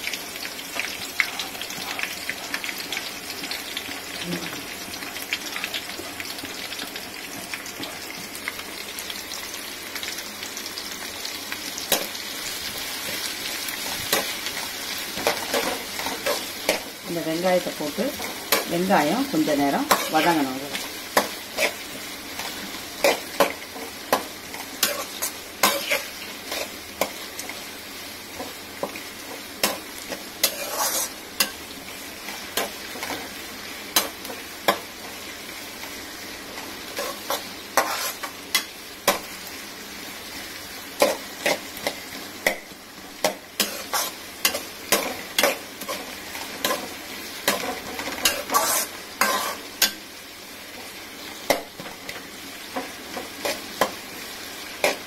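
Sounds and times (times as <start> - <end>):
onions sizzling in oil: 0.0 - 55.0
metal spatula scraping pan: 21.2 - 21.8, 24.8 - 27.1, 30.4 - 31.6, 36.9 - 38.7, 43.2 - 50.0.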